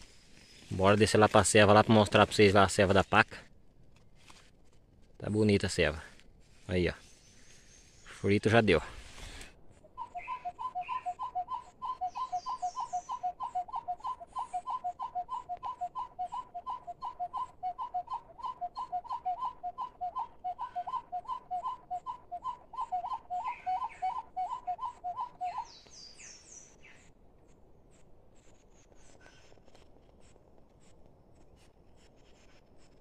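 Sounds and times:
faint bird chirps: 10.0 - 27.1.

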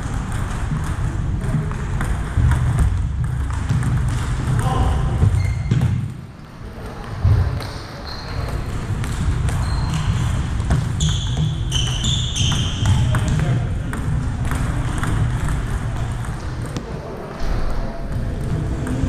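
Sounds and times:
sneakers squeaking on floor: 2.4 - 6.3, 7.1 - 13.7
low rumble of a hall: 12.8 - 19.0.

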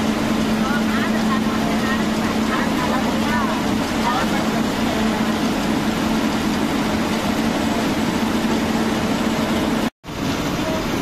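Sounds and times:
bus engine droning: 0.0 - 11.0
road noise: 0.0 - 11.0.

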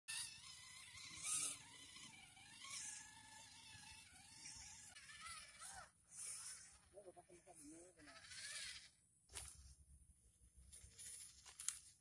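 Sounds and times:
small electric motor whining: 0.1 - 9.0.

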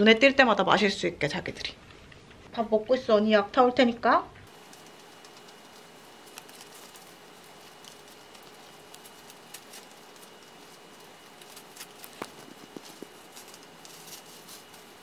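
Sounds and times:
dog paws pattering on pads: 4.5 - 15.0.

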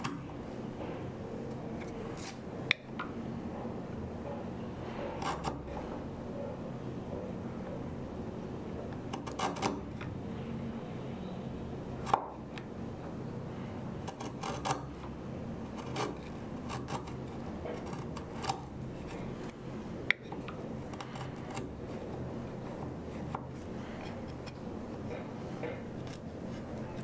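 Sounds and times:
low room hum: 0.0 - 27.0
blade paring wood shavings: 13.6 - 27.0.

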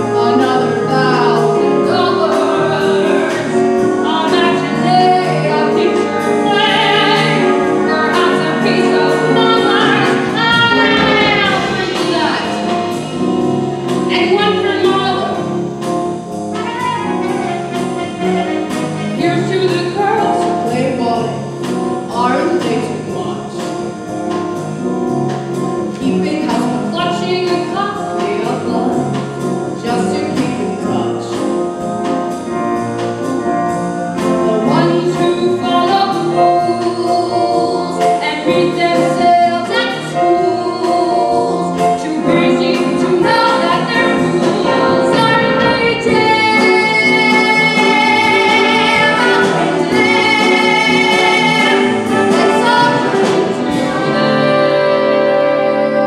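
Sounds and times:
instrumental accompaniment with brass: 0.0 - 56.0
woman singing show tune: 34.5 - 56.0.

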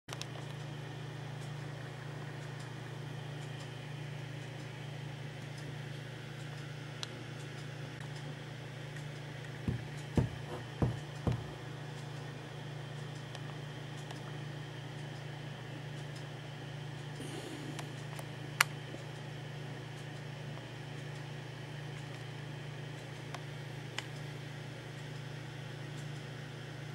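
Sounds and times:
low hum with hiss: 0.1 - 26.9
dull thumps: 9.6 - 11.6.

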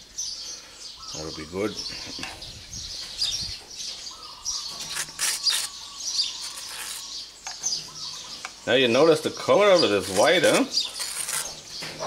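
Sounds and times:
small birds chirping: 0.0 - 12.0
knife spreading butter on toast: 6.4 - 7.1.

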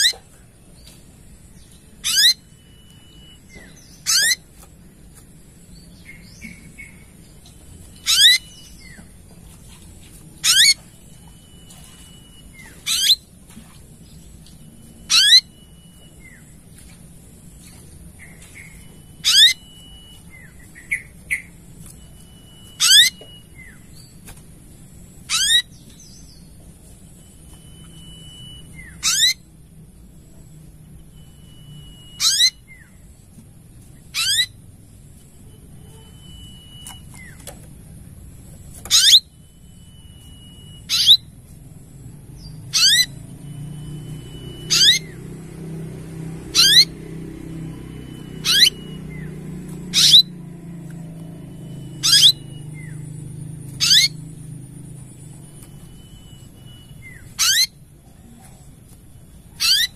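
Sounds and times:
bird singing high sweeping phrase: 42.4 - 57.8.

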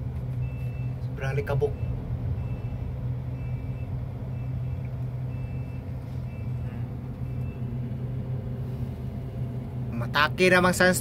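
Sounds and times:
crane engine running: 0.0 - 11.0
high warning beeper: 0.4 - 7.8.

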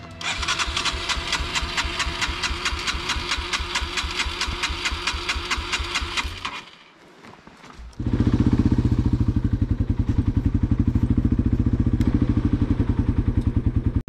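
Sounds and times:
motorcycle starter cranking engine: 0.1 - 6.9.

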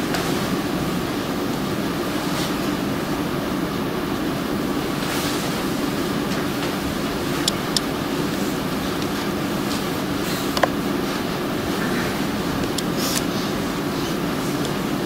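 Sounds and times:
room hum: 0.0 - 15.0.

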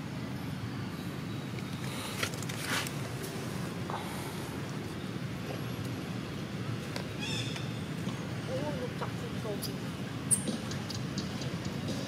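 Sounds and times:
distant road traffic rumble: 0.0 - 12.0.

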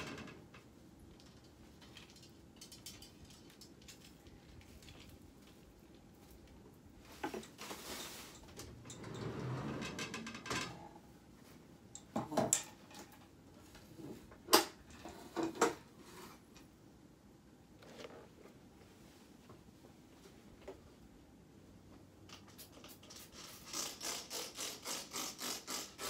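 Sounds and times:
rustling: 1.1 - 8.7.

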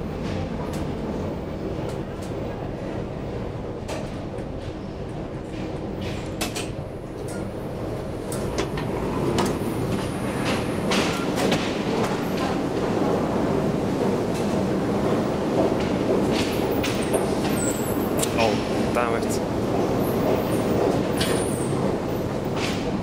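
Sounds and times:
metro station rumble: 0.0 - 23.0
elevator door sliding open: 5.4 - 13.1.

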